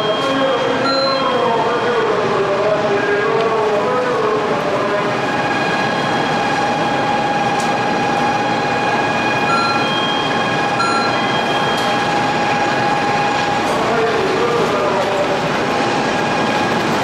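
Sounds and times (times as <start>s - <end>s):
short high beeps: 0.0s - 1.3s, 9.4s - 11.9s.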